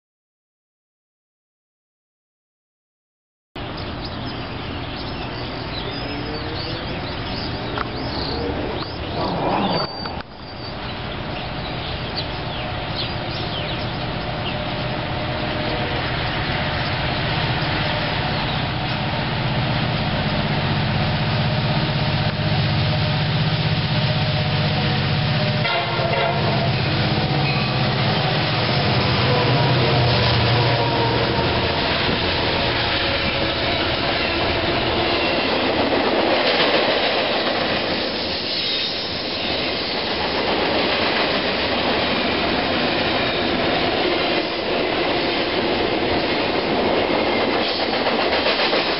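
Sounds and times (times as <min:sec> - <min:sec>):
locomotive engine drone: 0:03.6 - 0:36.1
rail noise: 0:03.6 - 0:48.9.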